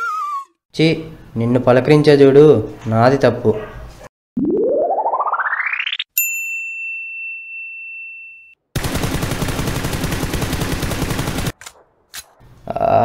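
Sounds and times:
rising sweep sound effect: 0:04.4 - 0:06.1
bright ding: 0:06.2 - 0:08.6
rapid automatic gunfire: 0:08.8 - 0:11.6.

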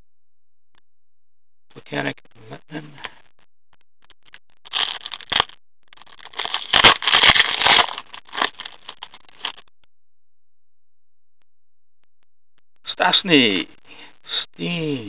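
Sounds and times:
wrapper tearing and crinkling: 0:04.7 - 0:09.6.

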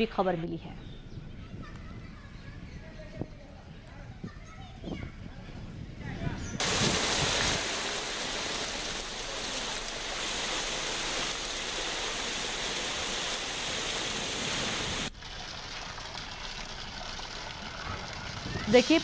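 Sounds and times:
heavy rain pouring: 0:06.6 - 0:19.0
water splashing into water: 0:06.6 - 0:19.0.

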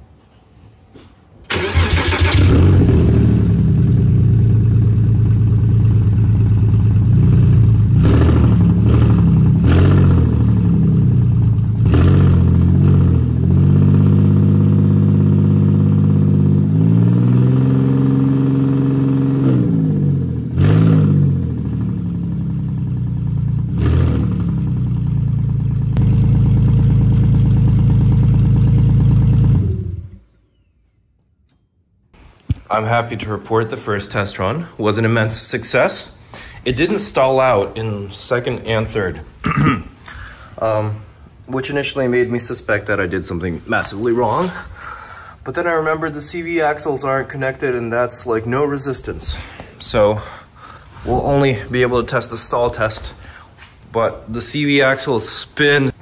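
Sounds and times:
car engine running: 0:02.4 - 0:30.2.

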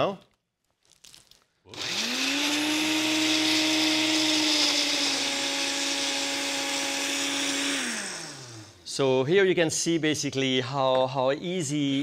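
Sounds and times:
blender motor whining: 0:01.7 - 0:08.9.

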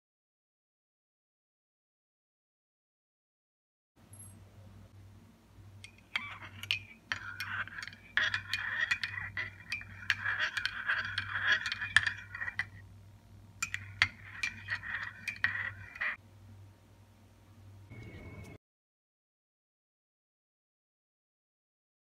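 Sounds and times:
teaspoon stirring in ceramic cup: 0:05.8 - 0:12.9, 0:13.6 - 0:16.2.

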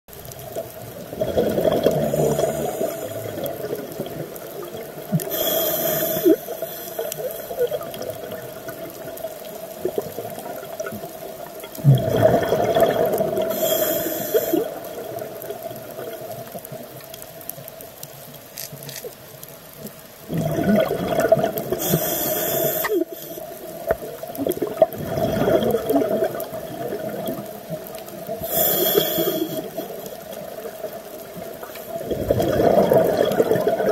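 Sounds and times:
bubbling exhaled air: 0:00.8 - 0:09.0, 0:11.7 - 0:16.3, 0:20.3 - 0:23.5, 0:24.2 - 0:27.6, 0:28.3 - 0:30.6, 0:31.9 - 0:33.9
diver breathing through regulator: 0:01.8 - 0:03.5, 0:05.2 - 0:07.6, 0:13.5 - 0:14.8, 0:21.8 - 0:23.4, 0:28.4 - 0:30.0.

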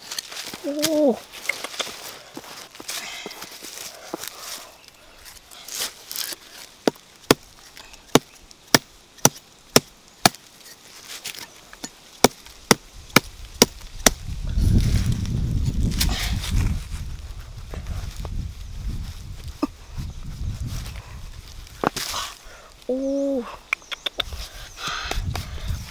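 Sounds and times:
soil scraped by hand: 0:00.0 - 0:18.4
chopping knocks in hard soil: 0:08.1 - 0:10.5, 0:12.2 - 0:14.2.

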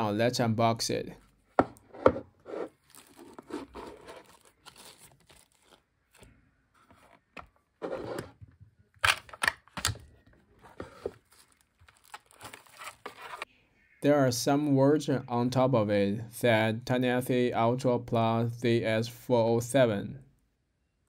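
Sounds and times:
plastic bag crinkling: 0:02.7 - 0:05.8, 0:11.2 - 0:13.4.

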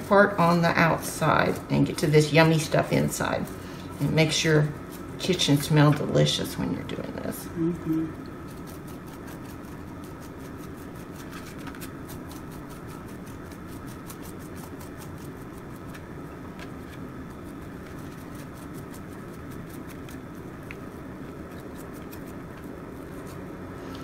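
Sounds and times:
low room hum: 0:00.0 - 0:24.0
soft ticks and scrapes of peeling: 0:08.4 - 0:23.4.

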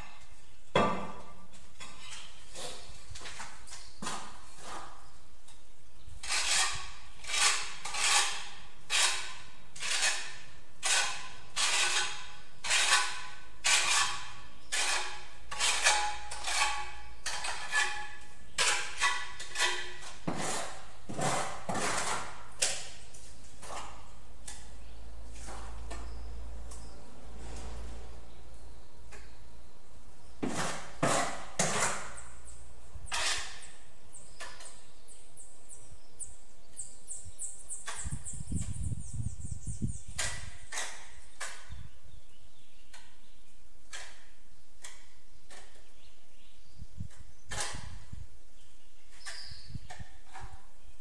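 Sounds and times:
steel trowel scraping mortar: 0:06.2 - 0:23.0, 0:30.4 - 0:32.4, 0:33.0 - 0:34.7, 0:39.8 - 0:41.6.

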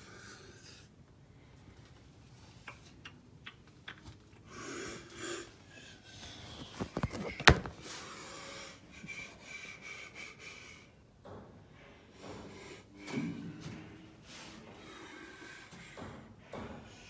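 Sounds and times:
close breathing: 0:04.4 - 0:17.0.

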